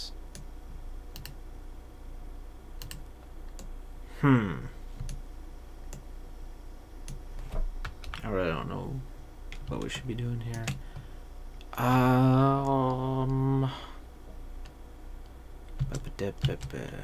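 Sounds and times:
keyboard and mouse clicking: 0:01.1 - 0:01.4, 0:02.8 - 0:03.7, 0:10.5 - 0:10.8
person murmuring: 0:04.1 - 0:04.8, 0:11.6 - 0:14.0.

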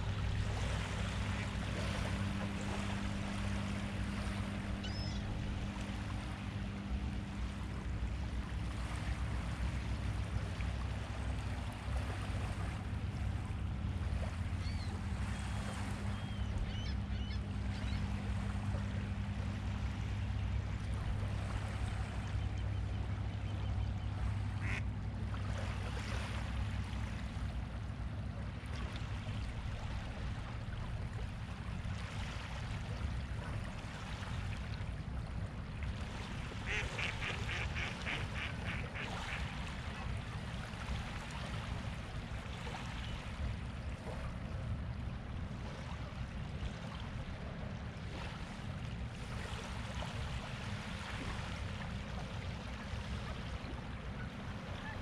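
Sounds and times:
waterfowl calling: 0:04.0 - 0:06.1, 0:15.9 - 0:18.4, 0:22.1 - 0:24.9, 0:36.6 - 0:40.1, 0:54.1 - 0:55.0.

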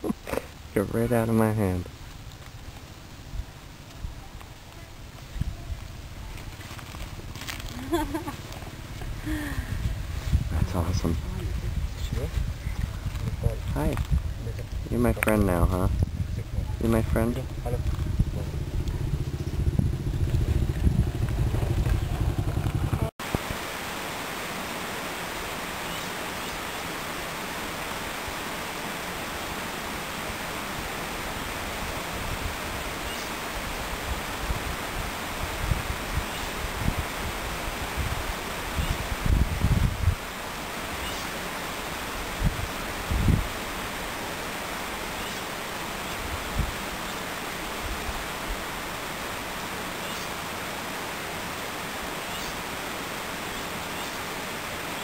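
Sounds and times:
outdoor rushing hiss: 0:00.0 - 0:55.0
outdoor rushing noise: 0:16.4 - 0:25.6.

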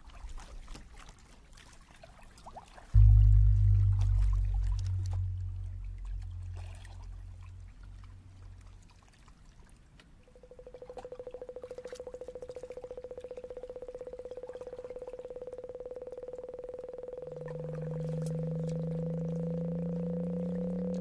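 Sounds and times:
rapidly pulsing synthesized tone: 0:03.0 - 0:08.4, 0:10.4 - 0:21.0
low tone rising in pitch: 0:03.0 - 0:08.7, 0:13.9 - 0:21.0.

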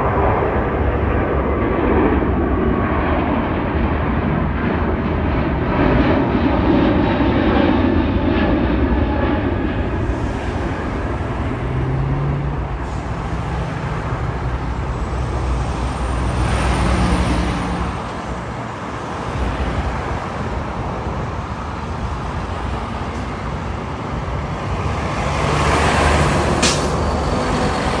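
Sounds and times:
jet airliner rumble overhead: 0:00.0 - 0:28.0
short sharp click: 0:26.6 - 0:27.0.

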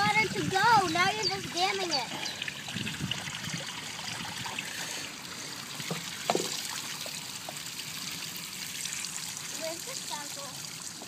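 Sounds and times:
water trickling and dripping: 0:00.0 - 0:11.0.

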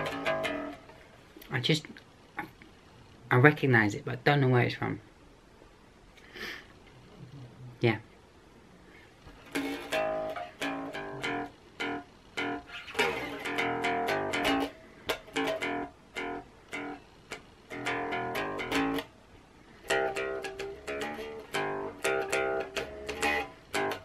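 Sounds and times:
electric bass guitar riff: 0:00.0 - 0:01.0, 0:09.4 - 0:19.1, 0:19.8 - 0:24.0.

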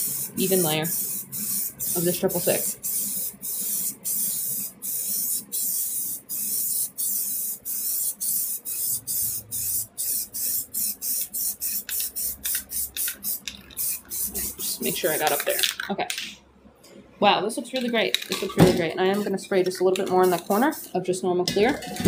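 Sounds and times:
aerosol can spraying: 0:00.0 - 0:15.7, 0:20.0 - 0:21.0.

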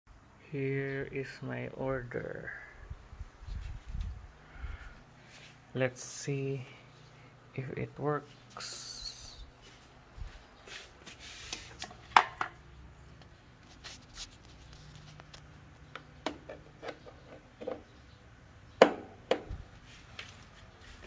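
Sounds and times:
sharp knocks: 0:18.8 - 0:19.6.

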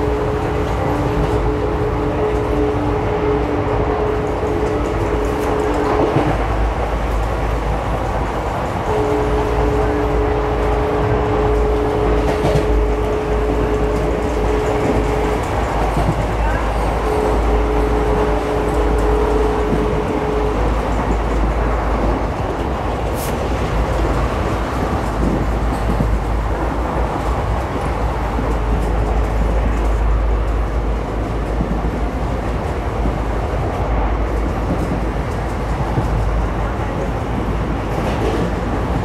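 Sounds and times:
train wheels rumbling on rail: 0:00.0 - 0:39.0.

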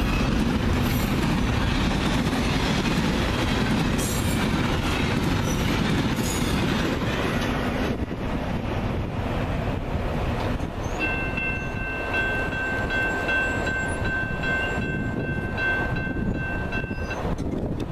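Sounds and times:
freight train rumbling: 0:00.0 - 0:17.9
crossing warning bell ringing: 0:10.9 - 0:17.3.

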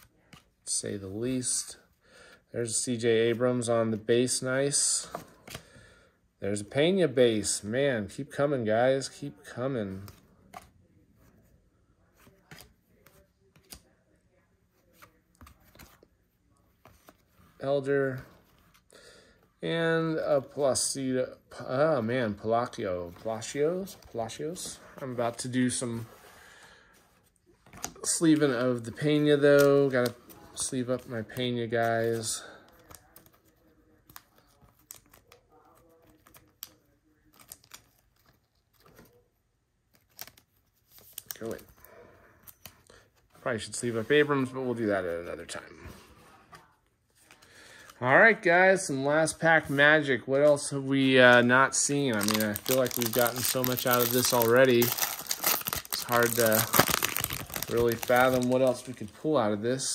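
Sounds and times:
card clicking and rustling in sleeve: 0:12.1 - 0:14.0, 0:14.7 - 0:18.9, 0:27.0 - 0:48.0, 0:50.4 - 0:59.9.

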